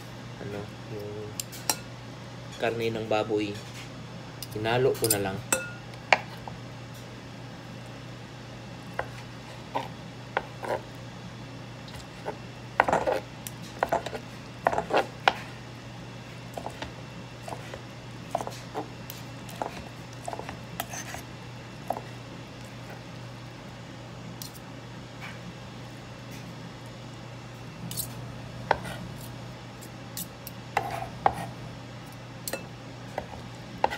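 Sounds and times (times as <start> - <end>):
steady low hum: 0.0 - 33.9
utensils clinking against dishes: 4.4 - 5.8.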